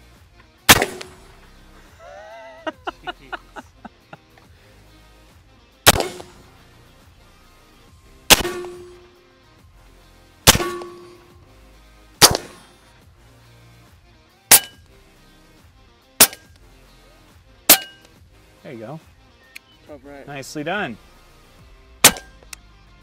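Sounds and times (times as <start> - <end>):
air rifle shots: 0.7 - 1.4, 5.8 - 6.6, 8.3 - 9.1, 10.4 - 11.4, 12.2 - 12.8, 14.5 - 14.8, 16.2 - 16.6, 22.0 - 22.5.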